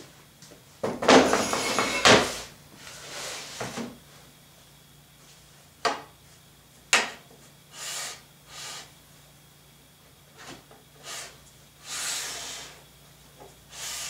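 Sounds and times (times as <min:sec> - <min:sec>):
metal frame scraping on plywood: 0:01.2 - 0:02.5.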